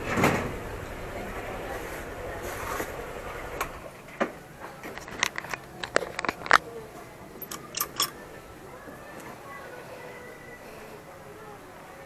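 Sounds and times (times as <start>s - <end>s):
motorcycle rumble: 0.0s - 8.6s.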